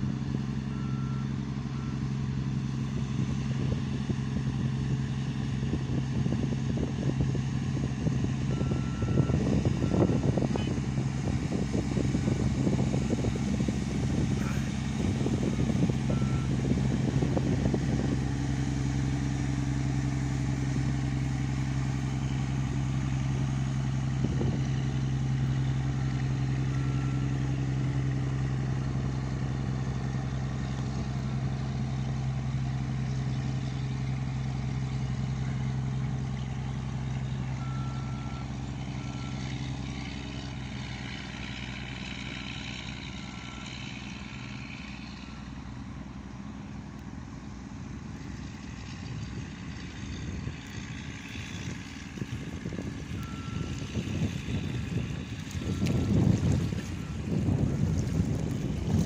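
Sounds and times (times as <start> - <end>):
boat engine droning: 0.0 - 59.0
rough crackling noise: 49.3 - 59.0.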